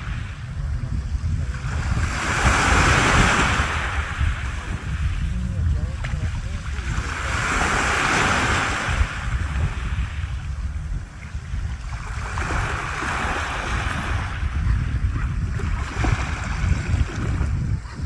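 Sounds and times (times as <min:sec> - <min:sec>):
wind rumble on microphone: 0:00.0 - 0:18.0
waves washing onto pebble shore: 0:01.8 - 0:05.4, 0:06.1 - 0:10.4.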